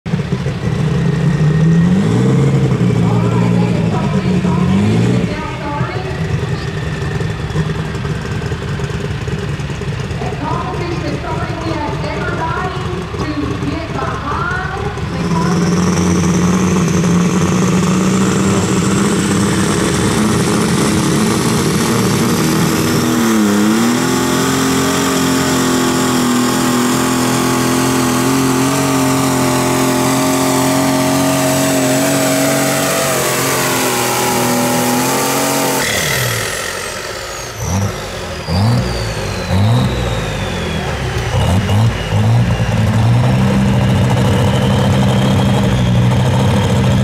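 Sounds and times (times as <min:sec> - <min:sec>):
engine at full throttle: 0:00.0 - 0:47.0.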